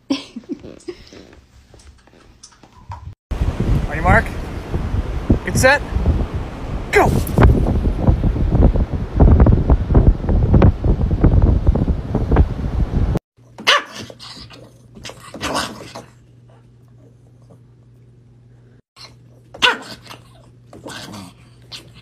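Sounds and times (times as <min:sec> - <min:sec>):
wind buffeting microphone: 0:02.9 - 0:13.2
small dog barking: 0:13.6 - 0:14.4, 0:19.6 - 0:20.2.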